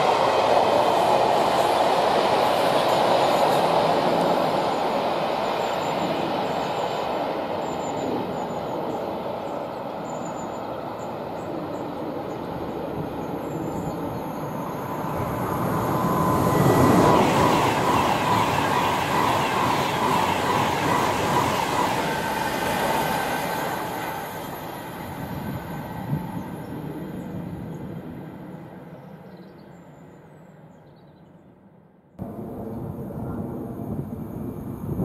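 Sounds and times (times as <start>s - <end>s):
train wheels on rails: 0.0s - 27.2s
freight train rumbling: 0.0s - 29.4s, 32.2s - 35.0s.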